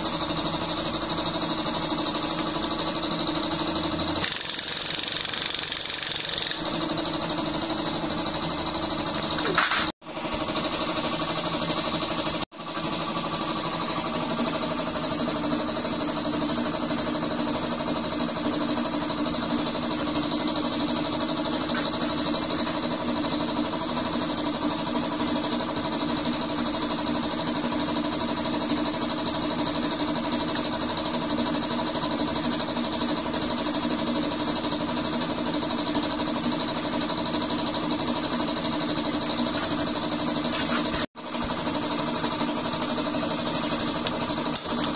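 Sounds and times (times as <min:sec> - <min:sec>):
machine droning: 0:00.0 - 0:24.6.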